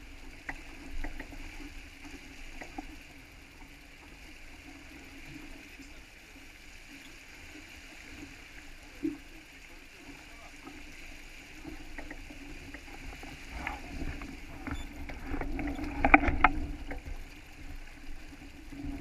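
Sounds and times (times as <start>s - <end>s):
water splashing along hull: 0.0s - 19.0s
light ticks: 0.2s - 4.1s
wind rumbling on microphone: 10.8s - 19.0s.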